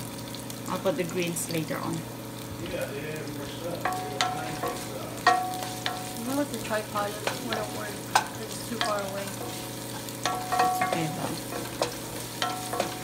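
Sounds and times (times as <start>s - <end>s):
onions sizzling in oil: 0.0s - 13.0s
wooden spoon knocking on pot: 3.9s - 13.0s.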